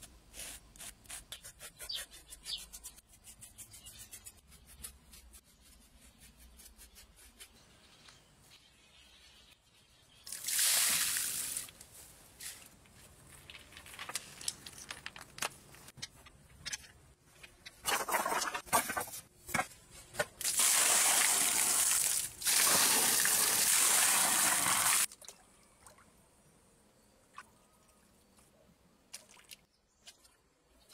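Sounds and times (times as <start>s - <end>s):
sand pouring: 10.3s - 11.8s
stones clacking: 13.2s - 16.9s.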